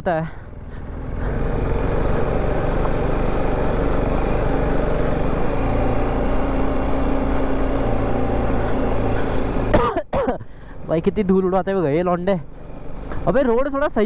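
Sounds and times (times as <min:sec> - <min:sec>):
motorcycle engine running: 0:00.4 - 0:09.7.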